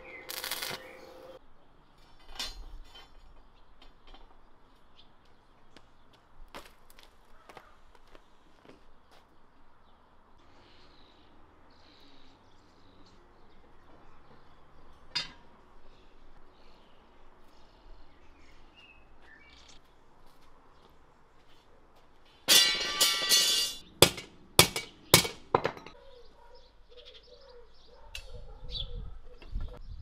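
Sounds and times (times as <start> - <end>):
sharp metal clanks: 22.5 - 26.0
faint bird chirps: 26.0 - 30.0.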